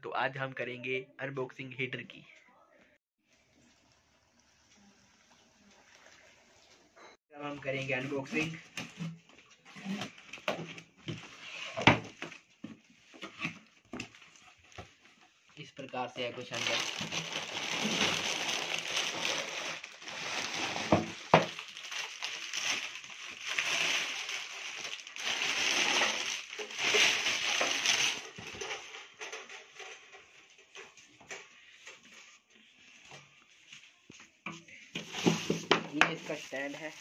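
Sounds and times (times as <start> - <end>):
plastic packaging crinkling: 16.1 - 30.1.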